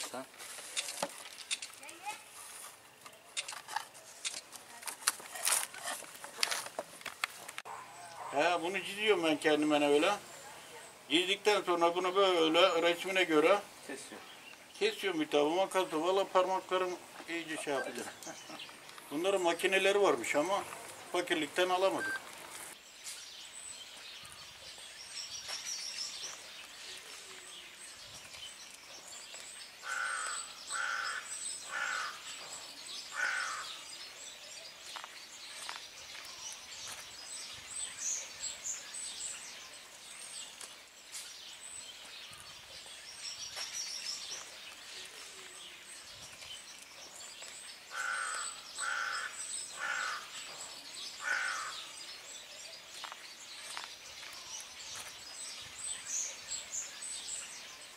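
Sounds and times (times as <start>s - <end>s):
small birds chirping: 0.0s - 57.9s
harsh bird calls: 24.2s - 57.9s.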